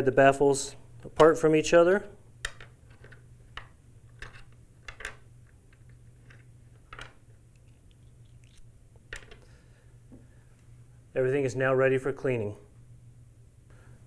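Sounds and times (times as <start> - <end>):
faint low hum: 0.0 - 14.0
metal parts clicking on wood: 2.4 - 9.4.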